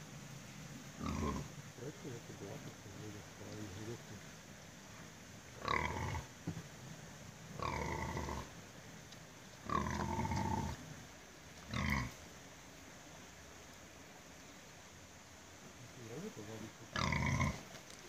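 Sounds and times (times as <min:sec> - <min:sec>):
pig grunting: 0:01.0 - 0:01.5, 0:05.6 - 0:06.3, 0:07.6 - 0:08.5, 0:09.6 - 0:10.8, 0:11.7 - 0:12.2, 0:16.9 - 0:17.6.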